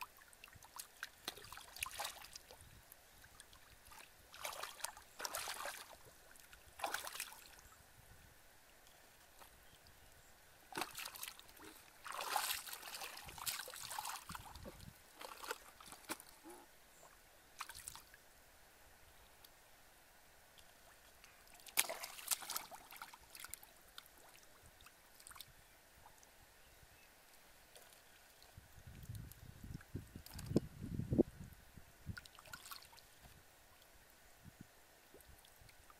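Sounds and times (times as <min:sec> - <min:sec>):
hands splashing in muddy water: 0:00.6 - 0:02.5, 0:03.9 - 0:06.0, 0:06.8 - 0:07.5, 0:10.7 - 0:16.3, 0:21.6 - 0:23.5.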